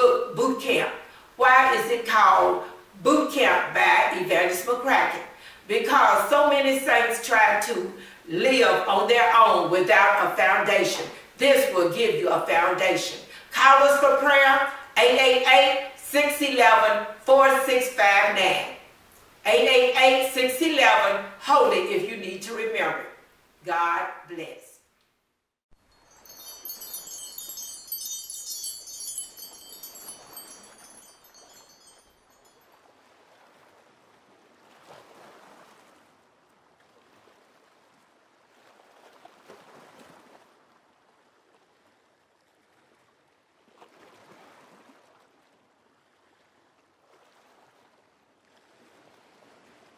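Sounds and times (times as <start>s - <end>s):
wind chime glissando: 25.8s - 32.7s
ocean waves washing: 26.1s - 32.0s.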